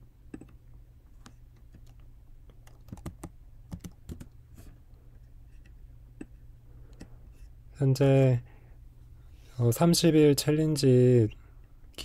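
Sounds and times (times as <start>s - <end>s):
faint low hum: 0.0s - 12.0s
keyboard key clicks: 2.6s - 4.3s.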